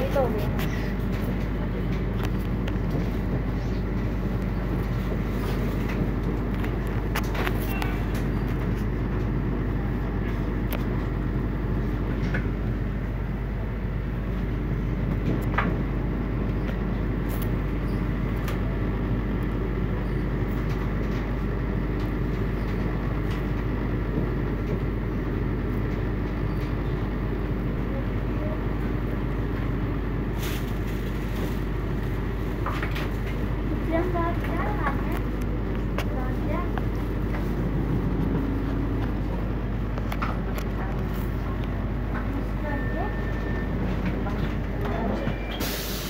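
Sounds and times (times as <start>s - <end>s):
train rumbling on track: 0.0s - 46.0s
sharp clicks of train: 12.0s - 12.7s, 14.3s - 18.8s, 20.4s - 27.2s.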